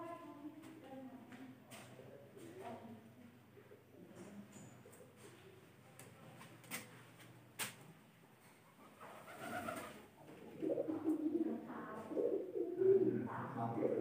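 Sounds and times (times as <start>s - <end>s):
dove cooing: 8.8s - 14.0s.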